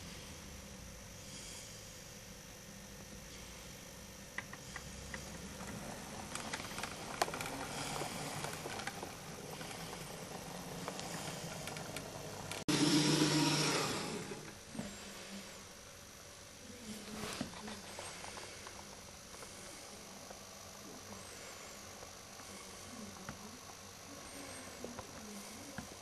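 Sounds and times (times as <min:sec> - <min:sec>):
model train motor whirr: 0:05.6 - 0:14.6.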